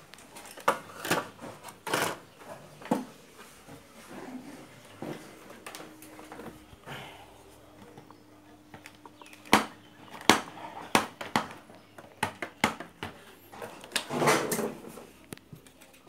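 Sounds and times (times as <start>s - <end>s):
clicks and knocks of hands handling electronics: 7.8s - 14.1s.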